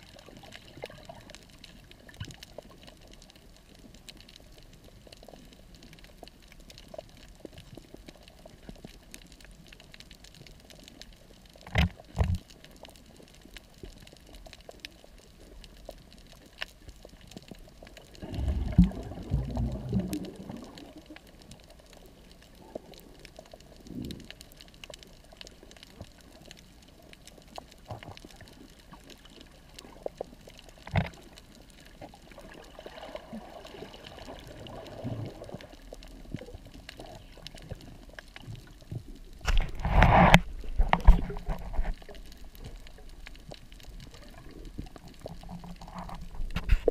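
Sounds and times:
gurgling rush of bubbles: 0:00.0 - 0:02.8, 0:17.8 - 0:24.4, 0:27.9 - 0:46.9
underwater wash: 0:00.0 - 0:46.9.

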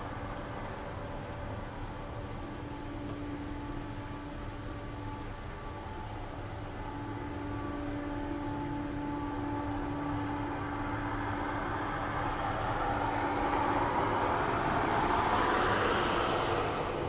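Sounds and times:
train wheels rumbling on rail: 0:06.0 - 0:17.0.

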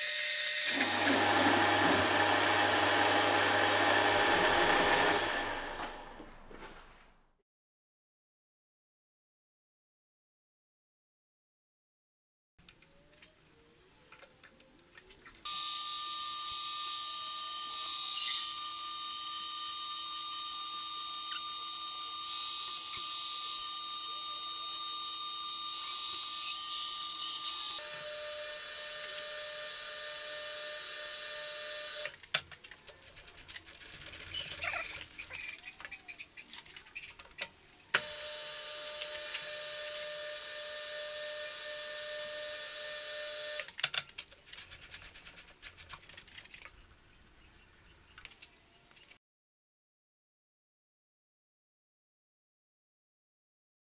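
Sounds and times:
drill boring into metal: 0:00.0 - 0:05.9, 0:38.0 - 0:43.7
lathe machine whine: 0:00.2 - 0:06.0.

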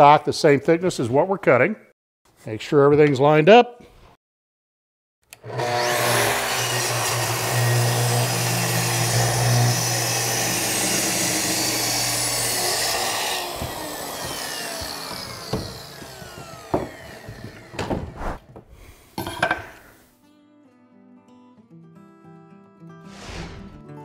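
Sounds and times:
track saw cutting wood: 0:05.3 - 0:18.2
saw blade winding down: 0:05.4 - 0:17.9
sharp knocks: 0:12.8 - 0:18.2.

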